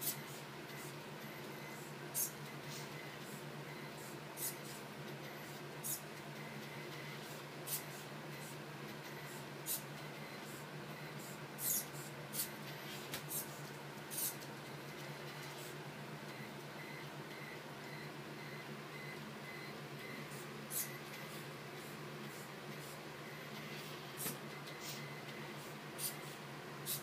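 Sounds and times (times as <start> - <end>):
steady low motor hum: 0.0 - 27.0
short high whirring bursts: 7.0 - 14.4, 20.0 - 27.0.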